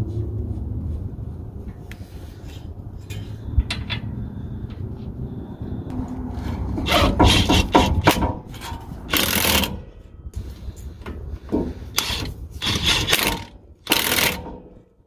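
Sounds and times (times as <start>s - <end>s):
ratchet wrench clicking: 6.9s - 9.8s, 12.0s - 14.6s.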